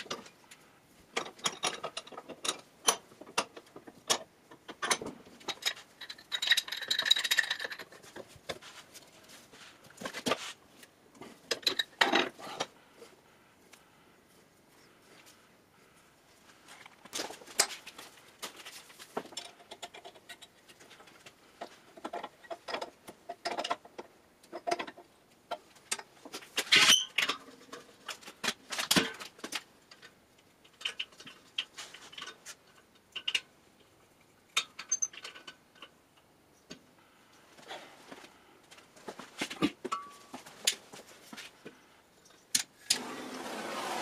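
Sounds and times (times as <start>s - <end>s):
metal pipe fittings clanking: 1.2s - 8.2s, 34.5s - 36.3s, 39.9s - 40.8s.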